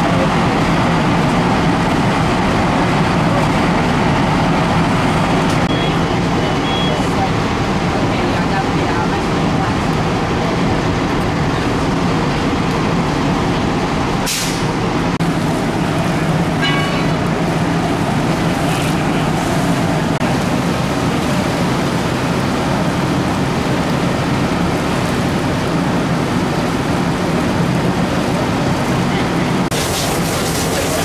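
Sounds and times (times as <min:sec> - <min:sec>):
diesel engine running: 0:00.0 - 0:31.0
brief high beep: 0:05.6 - 0:07.0
short sharp hiss: 0:14.3 - 0:14.7.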